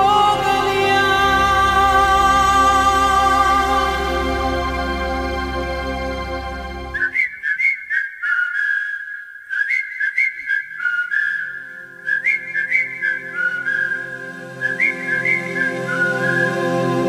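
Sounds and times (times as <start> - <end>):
soft sustained backing chords: 0.0 - 7.2, 14.1 - 17.0
whistled melody: 0.0 - 17.0.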